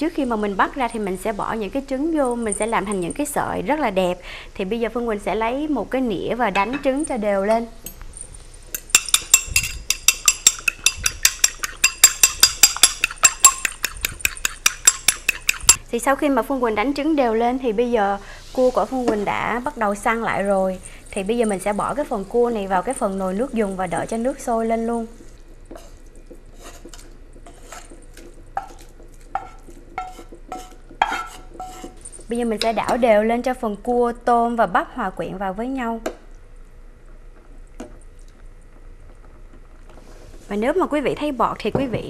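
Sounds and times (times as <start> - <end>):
utensil scraping glass saucepan: 8.7 - 15.8, 25.2 - 32.2
fork clinking against bowl: 8.8 - 15.8.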